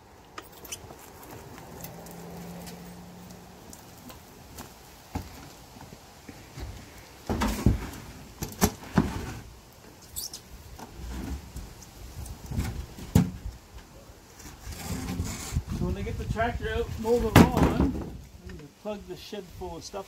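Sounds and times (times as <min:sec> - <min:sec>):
wooden knocks and scrapes: 0:06.5 - 0:09.5, 0:14.3 - 0:15.9.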